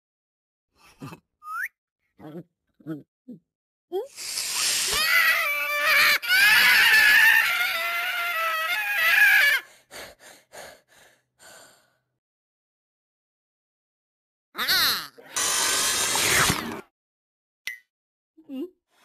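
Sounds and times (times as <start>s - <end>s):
person screaming harshly: 4.6s - 9.6s.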